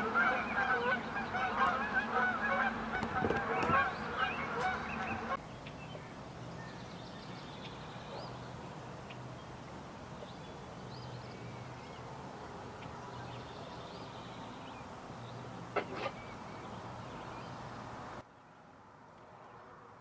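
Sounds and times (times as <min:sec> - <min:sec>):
goose honking: 0:00.0 - 0:05.4.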